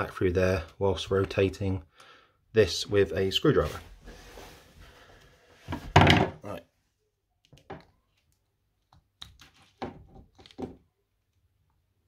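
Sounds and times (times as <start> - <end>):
knock: 5.7 - 6.4.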